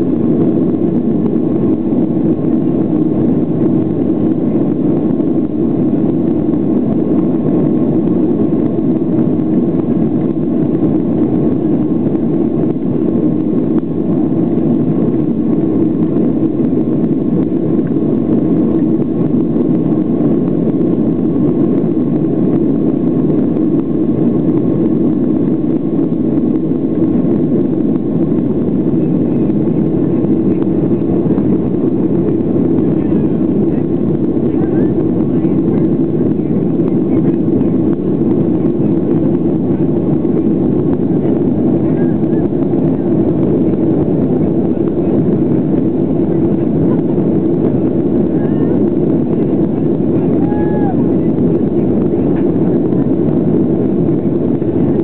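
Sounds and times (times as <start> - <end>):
jet engines roaring in cabin: 0.0 - 55.0.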